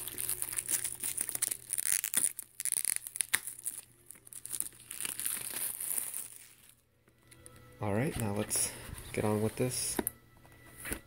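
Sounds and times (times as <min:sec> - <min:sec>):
plastic shrink wrap crinkling: 0:00.0 - 0:06.8.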